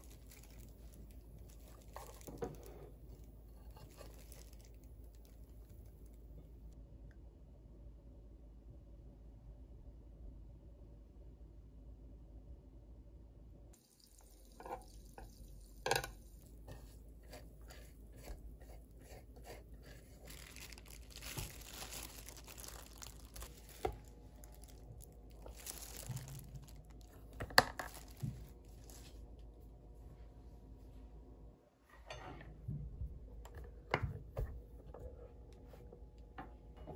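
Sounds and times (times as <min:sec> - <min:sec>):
crinkling and clicking handling: 0:00.0 - 0:06.2, 0:20.0 - 0:29.2
butter sizzling on hot plates: 0:13.8 - 0:16.8.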